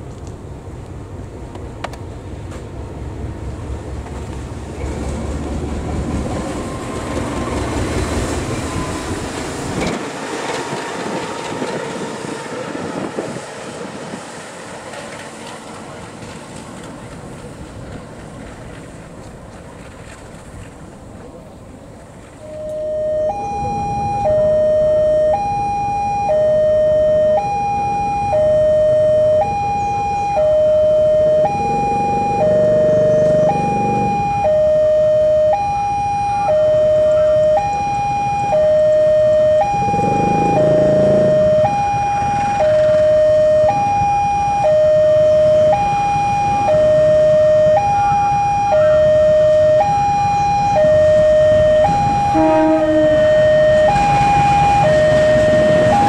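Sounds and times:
level crossing alarm two-tone signal: 22.4s - 56.0s
low rumble: 36.7s - 45.6s.

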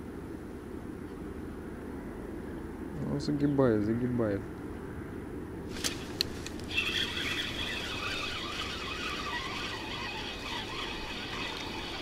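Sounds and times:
fishing reel whirring: 5.8s - 12.0s.

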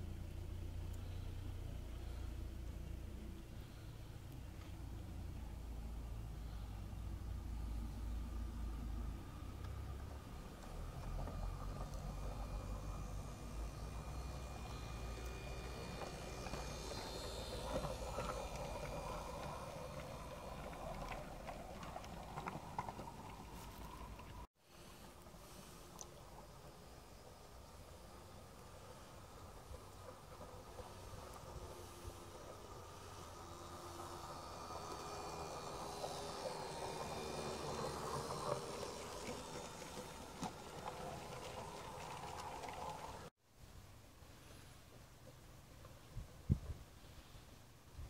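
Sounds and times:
wheels clicking over rail joints: 7.5s - 24.5s, 25.1s - 43.3s
toy train wagons rolling on track: 9.4s - 24.5s, 25.1s - 43.3s.

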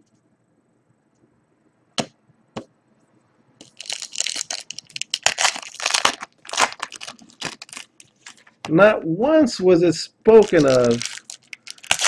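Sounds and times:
foil wrapper tearing and crinkling: 3.6s - 8.6s, 10.4s - 12.0s.

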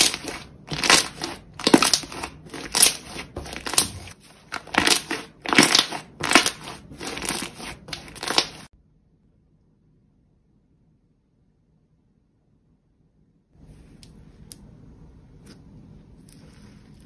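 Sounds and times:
slime squishing and crackling: 0.0s - 8.7s.

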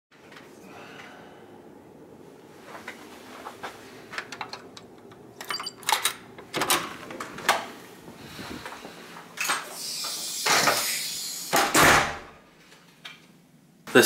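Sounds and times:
door lock and handle clicking: 4.2s - 6.9s.

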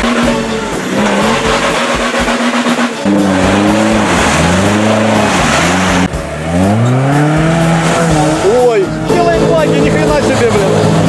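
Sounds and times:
music with steady drum beat: 0.0s - 5.3s
engine revving: 0.0s - 11.0s.

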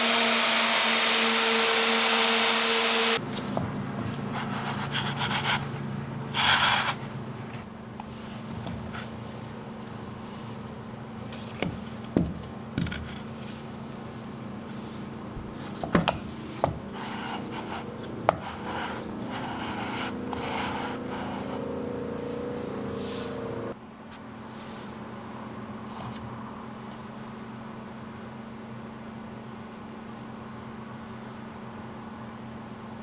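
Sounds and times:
steady low hum: 3.2s - 33.0s
wooden gears scraping: 16.9s - 23.4s.

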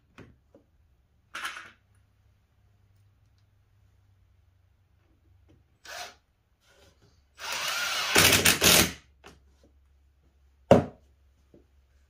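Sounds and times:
cordless drill drilling into wood: 5.8s - 6.2s, 7.4s - 9.0s.

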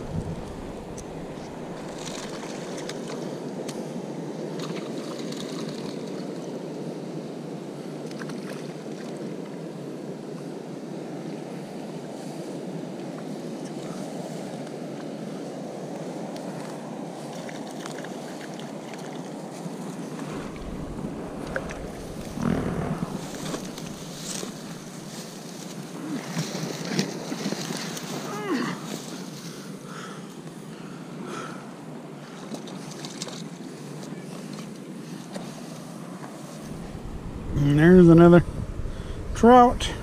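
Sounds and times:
knocks and rumble: 0.0s - 2.4s, 20.2s - 25.1s, 36.7s - 39.5s
water noise: 0.0s - 7.1s, 17.2s - 29.3s, 35.8s - 40.0s
wind: 0.0s - 40.0s.

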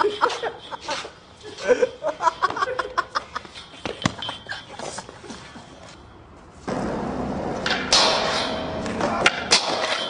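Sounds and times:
skateboard wheels rolling on pavement: 4.8s - 10.0s.

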